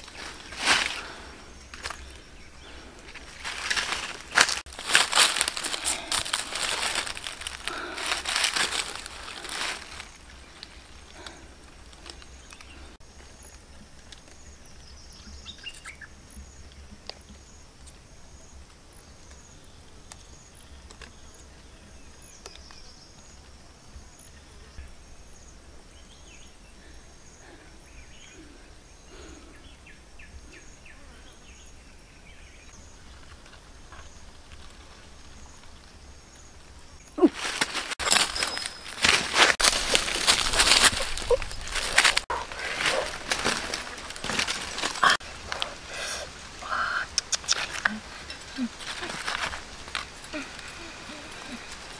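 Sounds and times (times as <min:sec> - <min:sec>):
footsteps crunching through dry leaves: 0:00.0 - 0:13.0, 0:37.2 - 0:46.6, 0:47.7 - 0:51.9.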